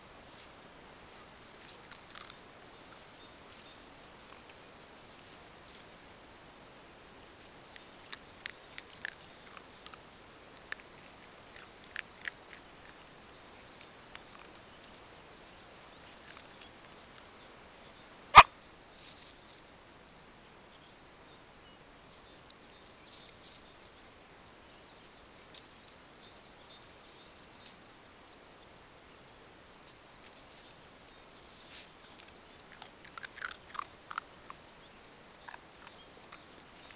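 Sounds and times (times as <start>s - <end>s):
dogs crunching dry kibble: 1.5s - 5.9s, 7.7s - 15.1s, 31.6s - 36.9s
dog yipping: 18.3s - 18.5s.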